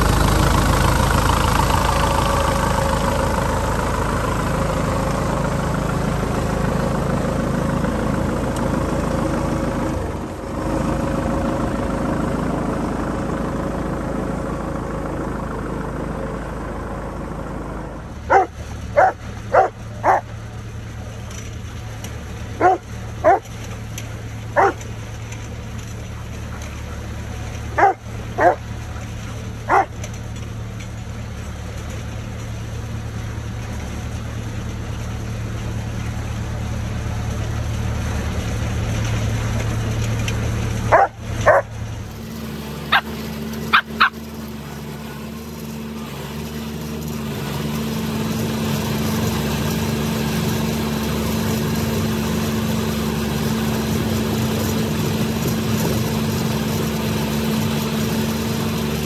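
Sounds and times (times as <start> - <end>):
tractor engine idling: 0.0 - 59.0
dog barking: 18.3 - 20.3, 22.6 - 23.4, 24.6 - 24.8, 27.8 - 28.6, 29.7 - 29.9, 40.9 - 41.7, 42.9 - 43.1, 43.7 - 44.2.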